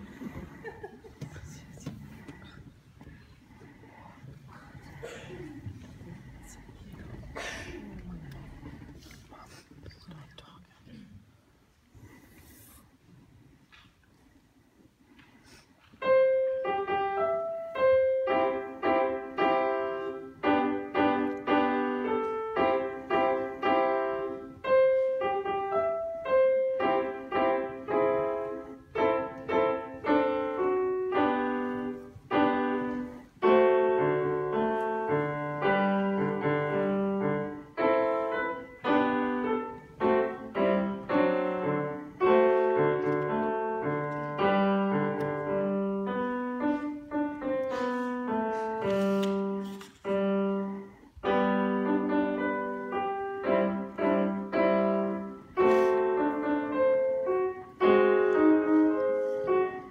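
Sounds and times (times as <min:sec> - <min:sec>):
solo piano piece: 0:16.0 - 0:59.9.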